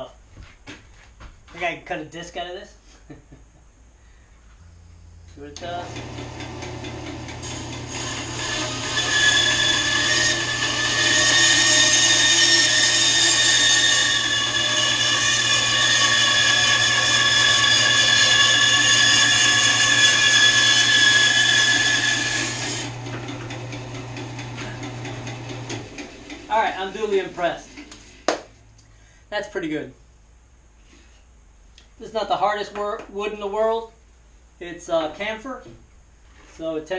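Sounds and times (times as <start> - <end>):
bandsaw motor hum: 4.8 - 28.2
saw blade cutting wood: 5.6 - 27.9.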